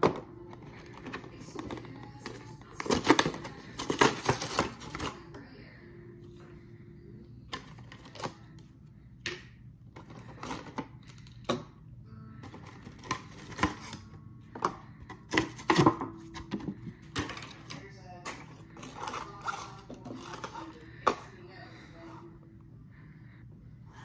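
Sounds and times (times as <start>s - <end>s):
plastic box clicking and crackling: 0.0s - 5.2s.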